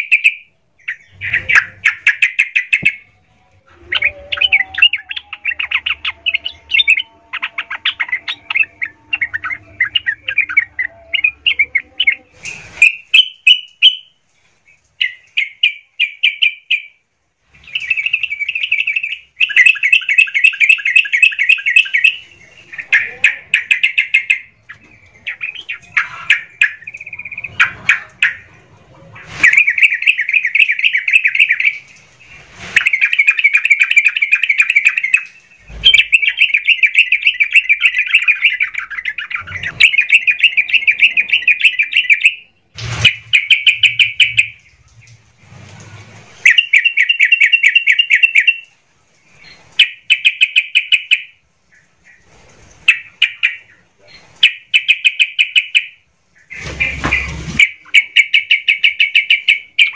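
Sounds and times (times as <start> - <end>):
bird chattering song: 0.0 - 14.2, 15.0 - 17.0, 17.6 - 44.8, 46.4 - 48.7, 49.4 - 59.9.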